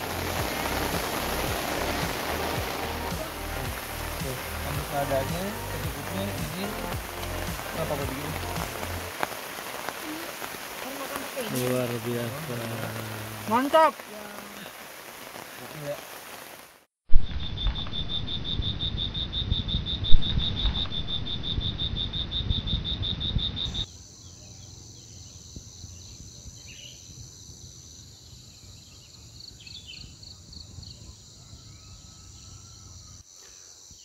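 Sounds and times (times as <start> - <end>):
crickets trilling: 0.0 - 16.6, 17.4 - 34.0
insects humming: 0.0 - 16.6, 17.8 - 34.0
heavy rain: 0.0 - 16.9.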